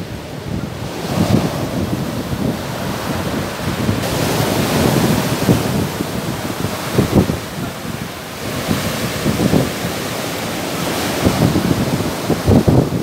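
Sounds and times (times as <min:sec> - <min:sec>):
surf breaking on pebble beach: 0:00.0 - 0:13.0
wind buffeting microphone: 0:00.0 - 0:13.0.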